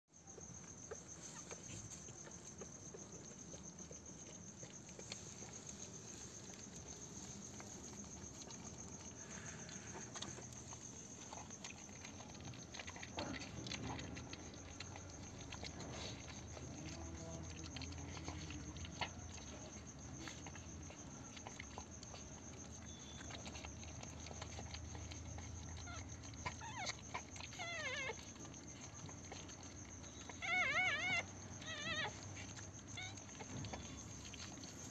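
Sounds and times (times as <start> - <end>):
rustling and scratching: 0.4 - 34.9
puppies squeaking: 20.9 - 34.9.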